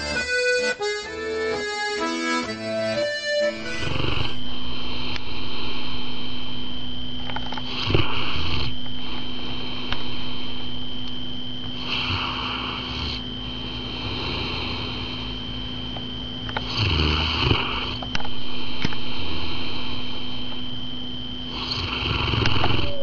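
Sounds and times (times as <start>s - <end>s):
dog snoring: 3.6s - 6.0s, 7.6s - 10.4s, 11.8s - 15.4s, 16.6s - 20.3s, 21.5s - 23.0s.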